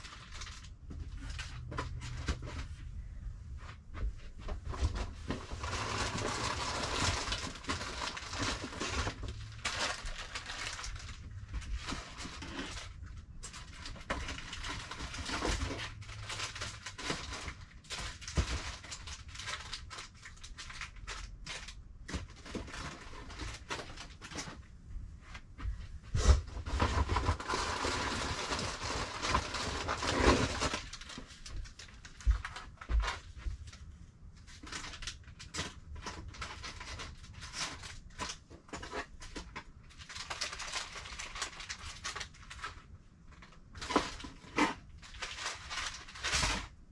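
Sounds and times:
cardboard boxes rustling: 0:25.6 - 0:33.4.

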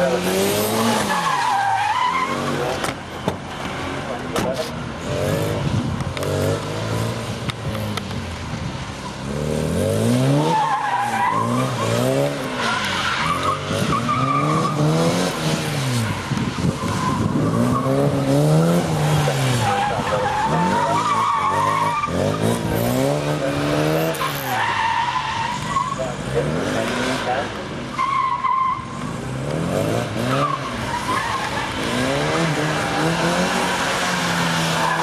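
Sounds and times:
car engine revving hard: 0:09.2 - 0:24.7, 0:29.0 - 0:35.0.

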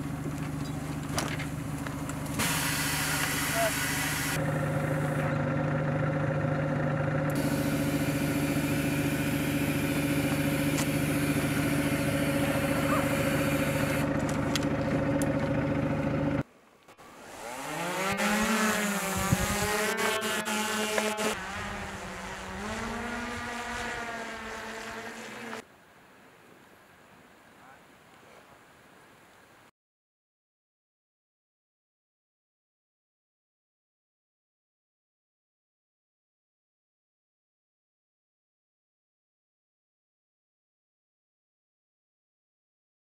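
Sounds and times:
drone motors whining: 0:00.0 - 0:16.4, 0:17.0 - 0:25.6
engine hum with held tones: 0:00.0 - 0:25.7.

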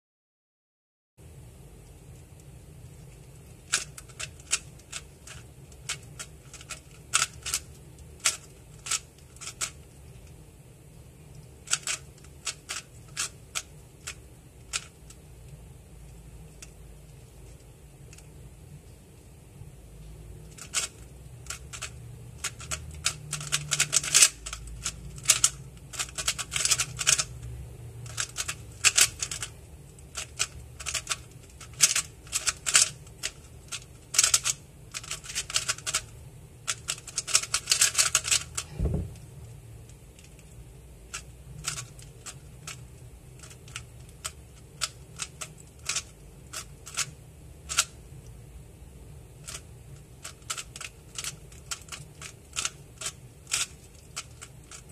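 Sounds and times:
puzzle cube plastic clicks: 0:03.4 - 0:10.4, 0:11.6 - 0:15.6, 0:20.4 - 0:27.4, 0:28.0 - 0:36.1, 0:36.7 - 0:38.7, 0:41.1 - 0:42.8, 0:43.4 - 0:48.0, 0:49.4 - 0:49.6, 0:50.2 - 0:54.9
low thump: 0:38.7 - 0:39.3.

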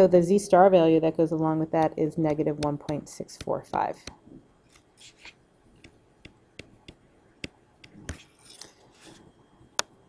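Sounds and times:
stylus tapping on tablet screen: 0:01.8 - 0:04.2, 0:05.0 - 0:08.2.

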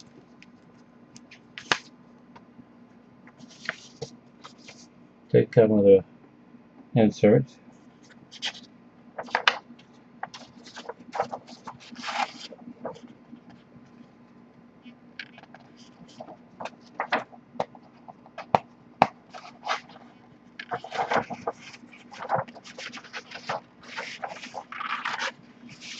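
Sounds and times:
paper and cardboard rustling: 0:03.4 - 0:04.9, 0:08.0 - 0:09.6, 0:10.2 - 0:13.6, 0:15.2 - 0:25.9.

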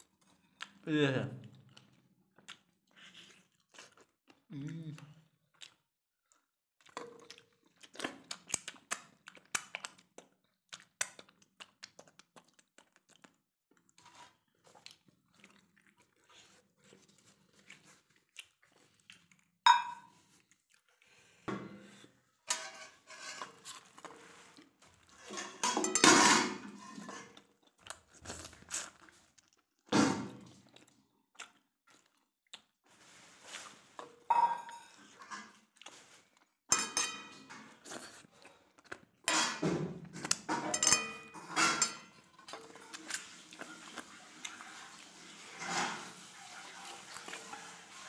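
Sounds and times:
metal bowls clinking and scraping: 0:19.7 - 0:20.1, 0:22.4 - 0:23.9, 0:25.0 - 0:27.4, 0:34.0 - 0:35.6, 0:36.7 - 0:37.8, 0:39.3 - 0:39.7, 0:40.4 - 0:43.0, 0:45.4 - 0:47.6.

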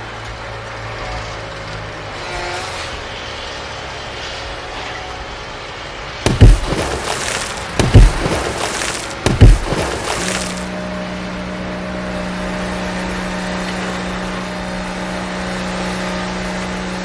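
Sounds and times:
heavy thumps with rushing tail: 0:06.3 - 0:10.6.

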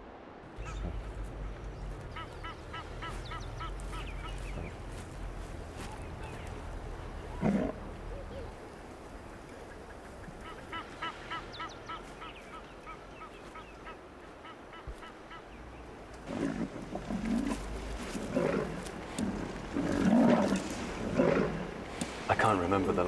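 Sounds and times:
honking bird calls: 0:00.6 - 0:06.8, 0:09.2 - 0:23.0
lions growling: 0:00.6 - 0:08.5, 0:16.1 - 0:23.0.

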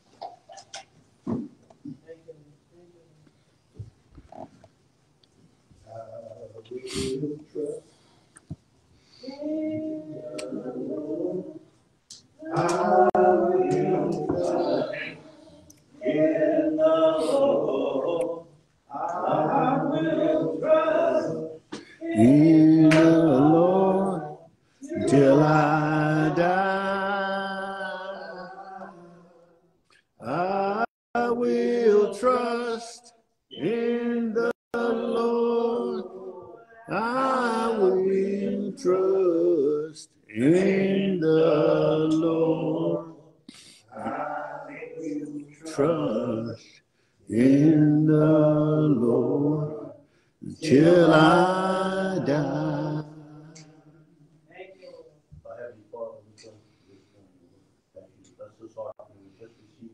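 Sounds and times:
man singing unaccompanied: 0:16.0 - 0:29.0, 0:30.2 - 0:43.2, 0:44.0 - 0:46.7.

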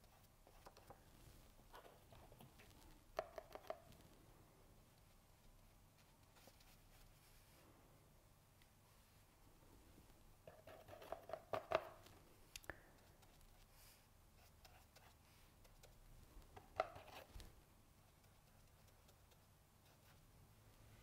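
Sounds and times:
paintbrush tapping and scraping: 0:00.0 - 0:04.1, 0:04.9 - 0:07.4, 0:10.4 - 0:20.3.

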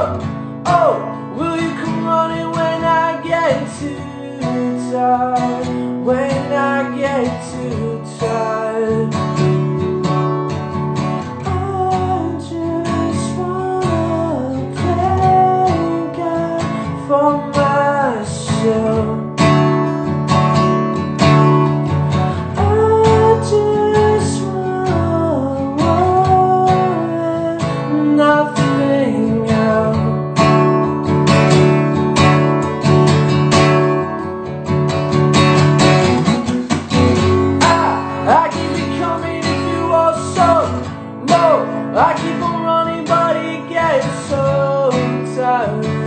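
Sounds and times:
person singing wordless melody: 0:00.0 - 0:09.4, 0:11.3 - 0:19.4, 0:22.1 - 0:30.4, 0:37.4 - 0:46.0
acoustic guitar strumming: 0:00.0 - 0:46.0.

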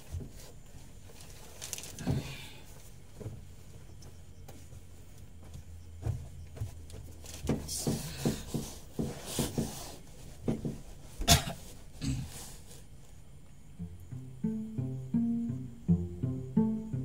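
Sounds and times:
person shifting on a bunk: 0:00.0 - 0:13.1
low steady hum: 0:00.0 - 0:17.0
plastic sheet crinkling: 0:01.0 - 0:02.0.

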